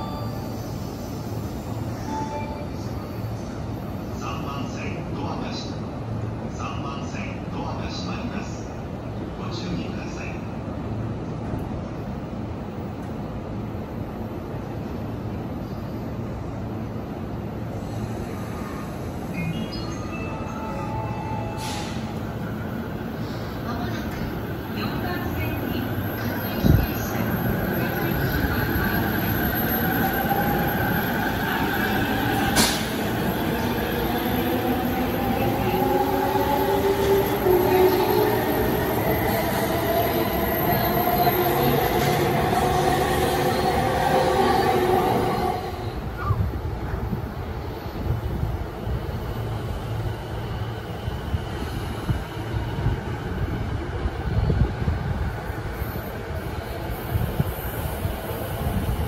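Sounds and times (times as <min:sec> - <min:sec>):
train wheels rumbling: 0:21.6 - 0:47.2.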